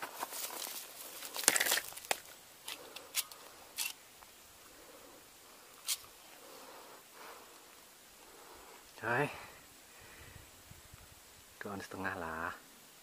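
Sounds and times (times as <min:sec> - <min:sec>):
fish flopping on gravel: 0:00.0 - 0:02.3.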